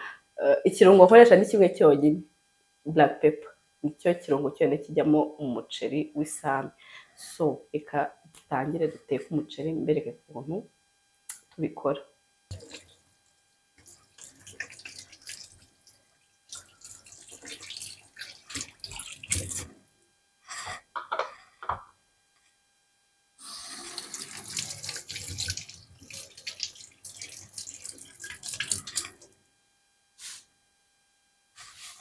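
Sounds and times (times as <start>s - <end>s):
tap water splashing into sink: 12.5s - 12.9s, 13.8s - 19.7s, 23.8s - 29.2s.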